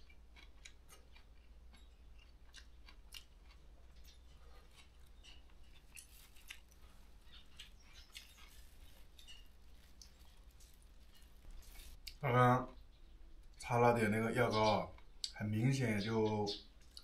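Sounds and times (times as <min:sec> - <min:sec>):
person chewing: 0:00.0 - 0:12.2, 0:16.7 - 0:17.0
plastic bag crackling: 0:08.2 - 0:12.0.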